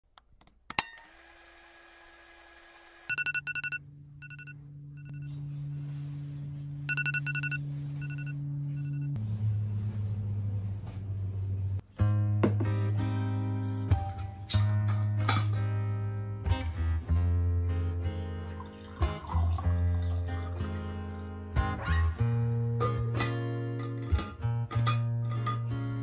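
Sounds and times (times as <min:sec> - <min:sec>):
high-pitched alarm beeps: 0:06.9 - 0:09.1
guitar music: 0:07.6 - 0:26.0.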